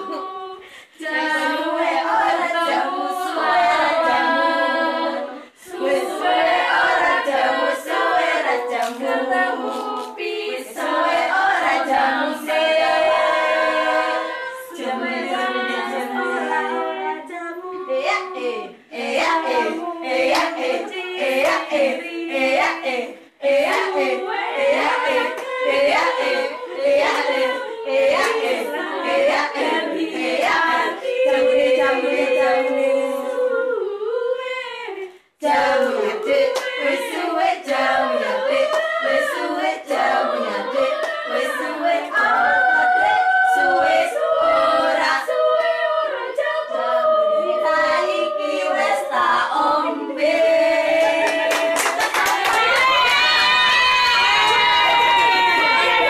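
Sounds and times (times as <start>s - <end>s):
women's choir singing a cappella: 0.0s - 56.0s
hand claps: 8.7s - 10.2s, 20.3s - 20.7s, 23.6s - 24.1s, 28.1s - 28.5s, 51.0s - 55.0s.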